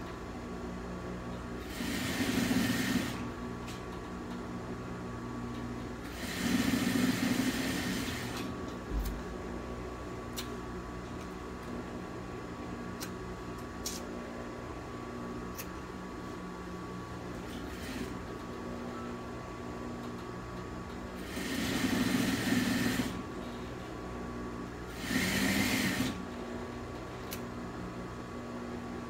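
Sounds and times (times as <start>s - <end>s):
steady hum: 0.0s - 29.0s
sewing machine stitching: 1.6s - 3.2s, 6.0s - 8.5s, 21.2s - 23.2s, 24.9s - 26.2s.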